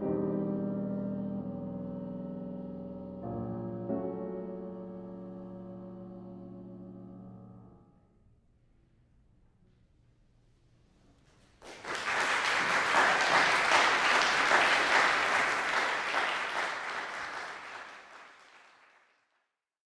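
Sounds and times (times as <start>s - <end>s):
audience applauding: 11.6s - 19.3s.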